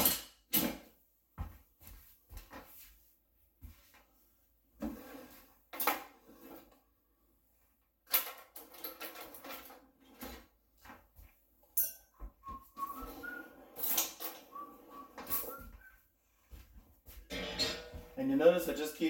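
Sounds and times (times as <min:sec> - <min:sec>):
drawers sliding open and shut: 0:04.8 - 0:06.8, 0:08.2 - 0:10.5, 0:12.8 - 0:15.6
cutlery clinking and clattering: 0:11.8 - 0:12.2, 0:13.2 - 0:15.6, 0:17.3 - 0:18.2.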